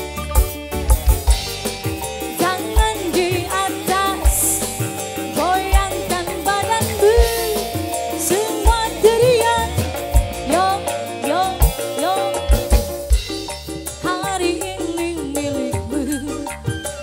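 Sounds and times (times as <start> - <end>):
deep hand-drum strokes: 0.0 - 14.4
held accompaniment tones: 0.0 - 17.0
percussion: 0.0 - 17.0
person singing sliding melody: 2.4 - 12.6.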